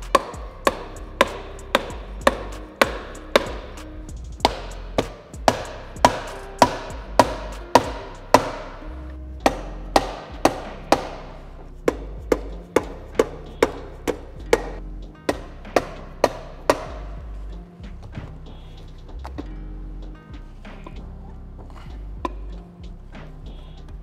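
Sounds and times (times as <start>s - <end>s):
mallet knocking on metal: 0.1s - 8.8s, 9.4s - 17.3s.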